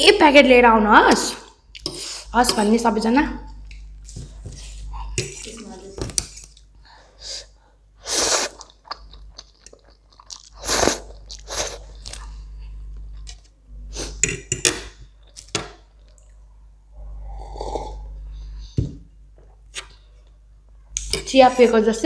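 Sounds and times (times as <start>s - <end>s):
person slurping noodles: 7.4s - 8.8s, 10.4s - 12.3s, 17.2s - 18.1s.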